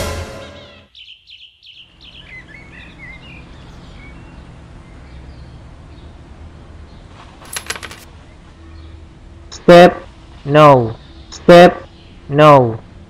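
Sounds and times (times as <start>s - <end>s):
bird chirps: 0.9s - 6.2s
clatter of sharp clicks: 7.4s - 8.1s.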